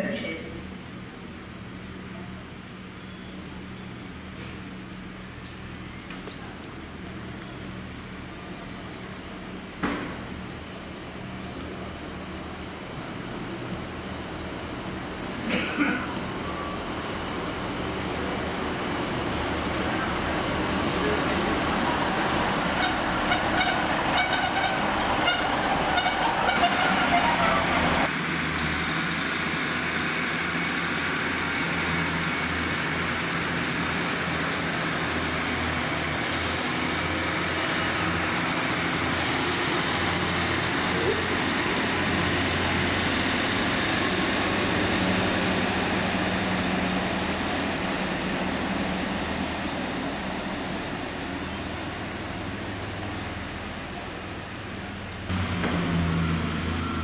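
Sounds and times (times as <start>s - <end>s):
low diesel engine drone: 11.0s - 57.0s
train whine climbing in pitch: 55.4s - 57.0s.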